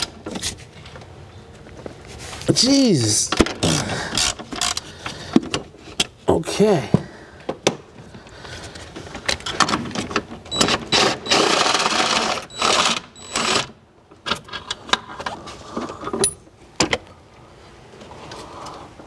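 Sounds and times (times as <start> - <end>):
cordless power tool whirring: 10.6 - 13.7.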